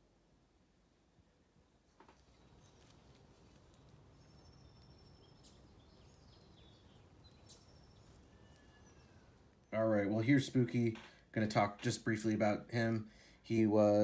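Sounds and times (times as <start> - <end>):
soft outdoor background: 0.0 - 14.0
birds chirping and whistling: 2.2 - 9.5.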